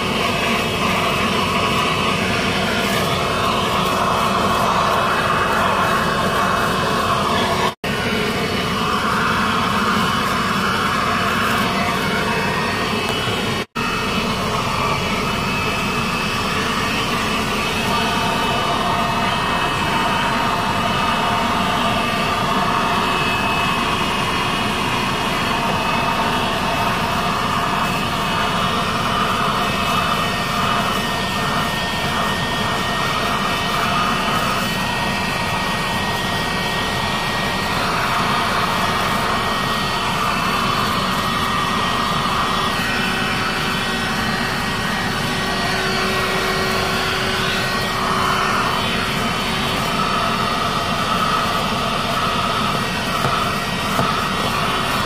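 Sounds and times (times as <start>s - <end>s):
handheld vacuum cleaner running: 0.0s - 55.0s.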